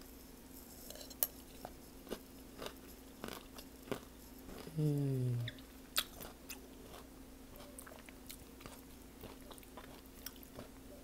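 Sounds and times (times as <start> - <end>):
faint steady hum: 0.0 - 11.0
crunchy chewing: 1.1 - 4.8, 5.5 - 11.0
person humming: 4.6 - 5.6.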